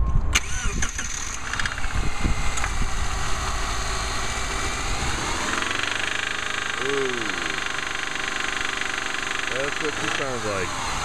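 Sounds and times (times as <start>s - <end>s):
car engine cranking and starting: 0.3s - 11.0s
engine rhythmic knocking: 3.4s - 11.0s.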